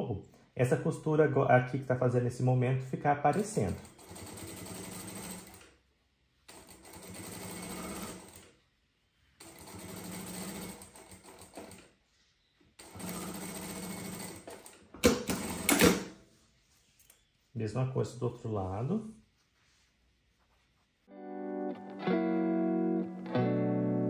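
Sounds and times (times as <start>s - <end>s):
sewing machine stitching: 3.4s - 5.7s, 6.5s - 8.5s, 9.4s - 11.9s, 12.8s - 16.1s.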